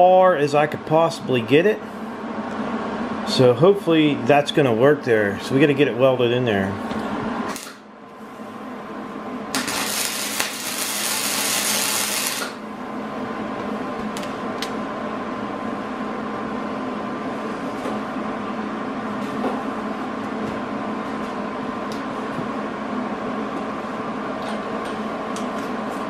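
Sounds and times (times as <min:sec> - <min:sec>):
machine hum: 0:00.0 - 0:26.0
arc welder crackling and hissing: 0:07.4 - 0:08.4, 0:09.5 - 0:12.7.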